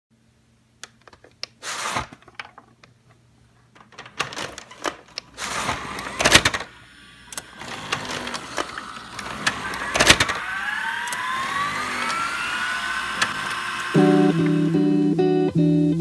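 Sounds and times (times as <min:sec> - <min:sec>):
scattered clicks and knocks: 0:03.7 - 0:06.7, 0:07.4 - 0:10.4.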